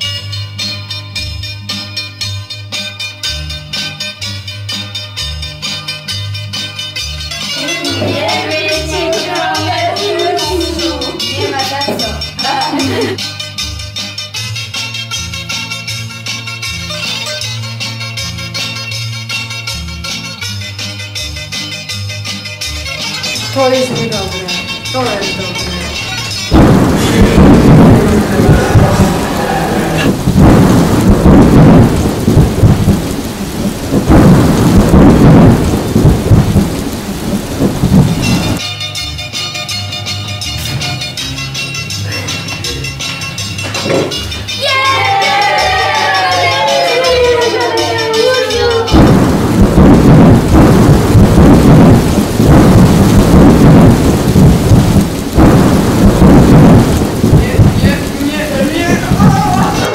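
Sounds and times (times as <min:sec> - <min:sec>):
music: 0:00.0 - 0:30.1, 0:38.2 - 0:49.3, 0:57.4 - 0:59.9
steady rain: 0:06.7 - 0:14.6, 0:15.2 - 0:38.6, 0:40.5 - 0:59.9
rolling thunder: 0:23.5 - 0:38.6, 0:48.8 - 0:59.9.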